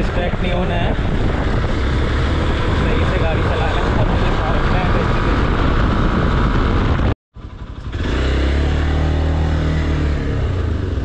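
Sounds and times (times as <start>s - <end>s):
wind noise: 0.0s - 7.2s
motorcycle engine running: 0.0s - 11.0s.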